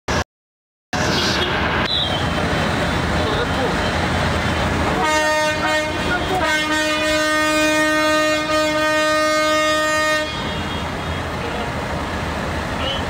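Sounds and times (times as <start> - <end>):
vehicle air horn blast: 5.0 - 11.2.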